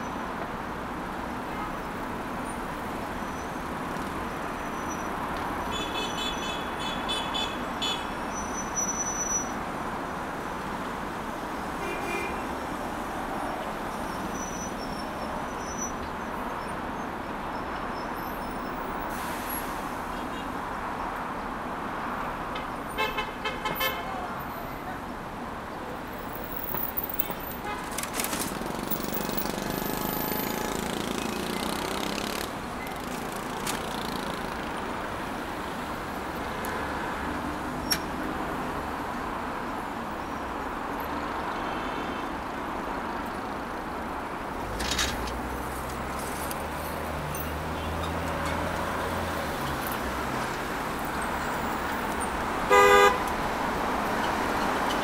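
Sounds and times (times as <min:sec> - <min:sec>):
road traffic noise: 0:00.0 - 0:55.0
car horn honk: 0:52.7 - 0:53.3.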